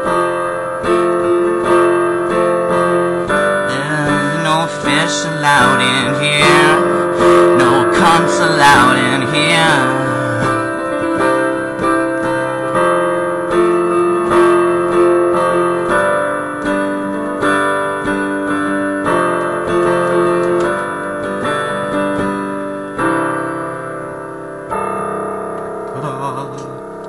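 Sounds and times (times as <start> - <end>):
piano chords: 0.0 - 27.0.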